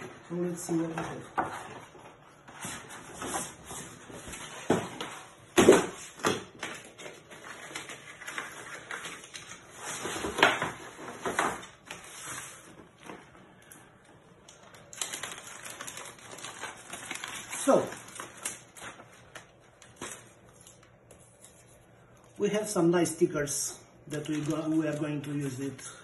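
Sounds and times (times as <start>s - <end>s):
plastic bag crinkling: 14.5s - 20.7s, 24.1s - 26.0s
cardboard package being handled: 14.5s - 21.5s.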